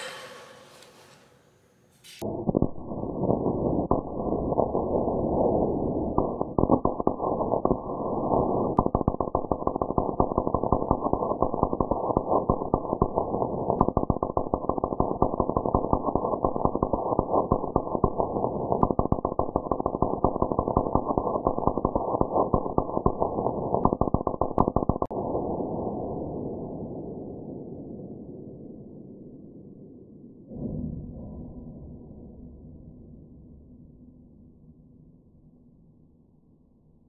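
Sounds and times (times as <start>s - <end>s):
welder hiss: 0.0s - 2.2s
welder arc crackling: 0.0s - 25.1s.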